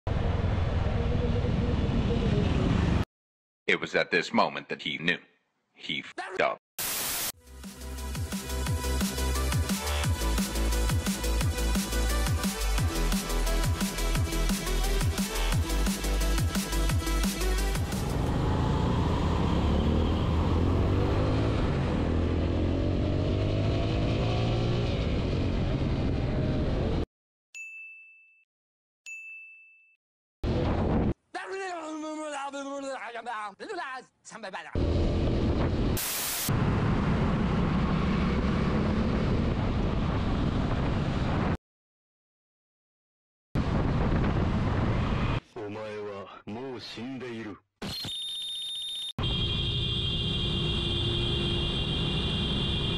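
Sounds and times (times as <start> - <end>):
road and wind noise: 0.1 - 3.0, 17.8 - 27.0, 34.8 - 41.6, 43.6 - 45.4
tv static hiss: 6.8 - 7.3
motorcycle engine accelerating: 17.8 - 27.0, 36.5 - 41.1.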